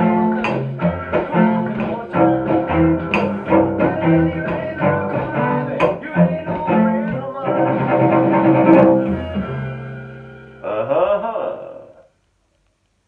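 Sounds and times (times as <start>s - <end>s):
cello bass line: 0.0s - 10.9s
sharp percussive strokes: 0.2s - 6.1s.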